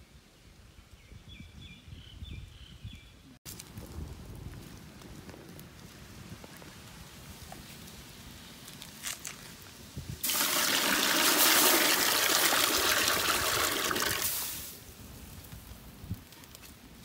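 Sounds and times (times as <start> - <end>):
water pouring into metal pot: 10.2 - 14.6.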